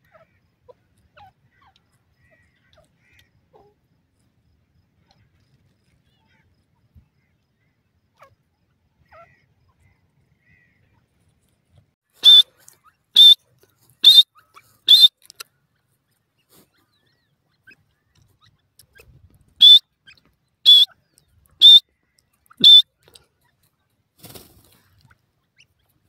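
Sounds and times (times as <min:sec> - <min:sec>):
bird shrill whistled calls: 0:12.2 - 0:12.5, 0:13.2 - 0:13.4, 0:14.0 - 0:14.3, 0:14.9 - 0:15.1, 0:19.6 - 0:19.8, 0:20.7 - 0:20.9, 0:21.6 - 0:21.8, 0:22.6 - 0:22.8.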